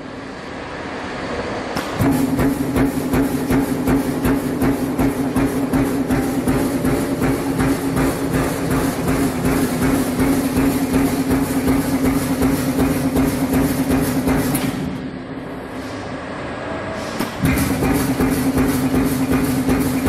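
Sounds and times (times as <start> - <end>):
press punching sheet metal: 1.8 - 16.1, 17.0 - 20.0.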